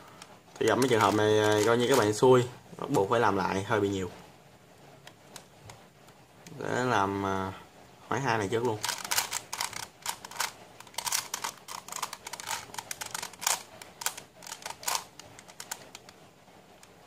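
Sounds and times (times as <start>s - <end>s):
plastic puzzle clicking: 0.2s - 2.2s, 8.6s - 16.2s.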